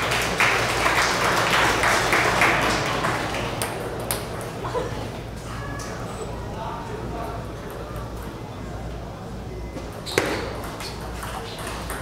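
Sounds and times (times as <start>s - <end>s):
crowd clapping: 0.0s - 4.4s
table tennis ball bouncing: 9.8s - 12.0s.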